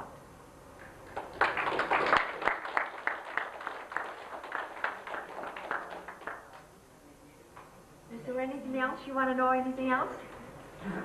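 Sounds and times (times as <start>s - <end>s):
audience applauding: 1.0s - 6.7s.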